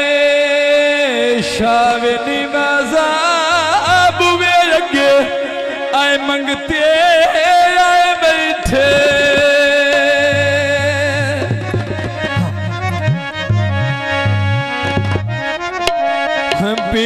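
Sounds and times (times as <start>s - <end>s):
reedy melody line: 8.8s - 17.0s
low stepping bass line: 9.0s - 17.0s.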